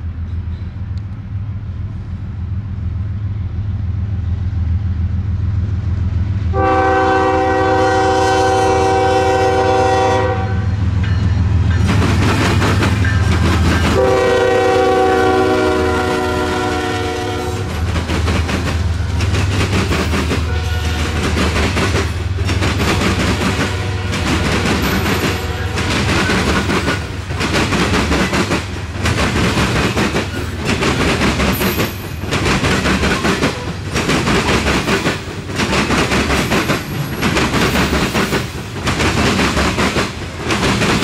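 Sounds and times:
diesel locomotive rumble: 0.0s - 41.0s
locomotive horn blasts: 6.5s - 10.8s, 13.8s - 17.7s, 20.4s - 21.4s, 23.4s - 26.1s
wheels clattering over rail joints: 11.0s - 14.2s, 17.7s - 41.0s.

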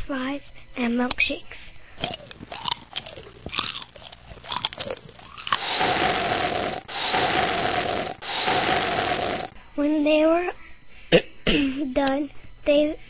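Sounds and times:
crunchy chewing: 2.0s - 9.5s
slurping through a straw: 2.0s - 9.5s.

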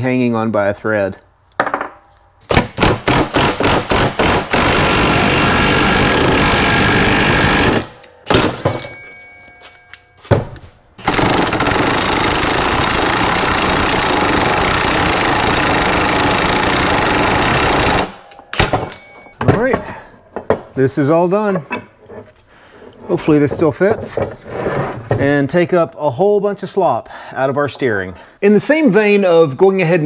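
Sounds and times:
impact wrench hammering: 1.6s - 20.7s.

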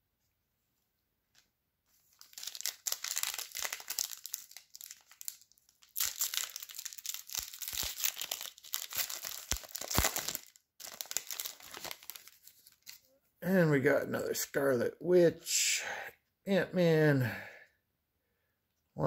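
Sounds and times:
plastic wrapper crinkling: 1.9s - 13.1s.

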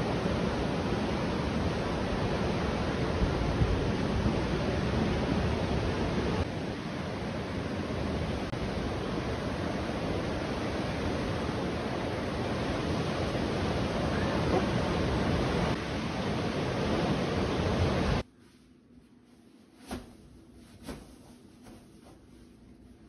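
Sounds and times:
ocean surf breaking: 0.0s - 18.2s
stormy wind: 0.0s - 18.2s.

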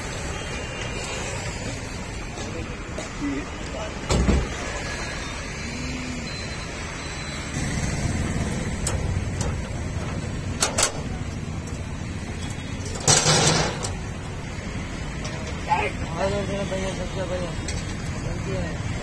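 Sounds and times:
tailgate metal clatter: 8.8s - 11.2s, 13.0s - 14.0s
tailgate latches clinking: 10.6s - 11.1s.

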